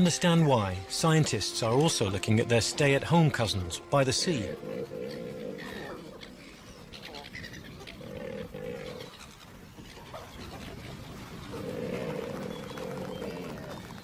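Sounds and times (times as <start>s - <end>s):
pelicans low drawn-out calls: 4.2s - 14.0s.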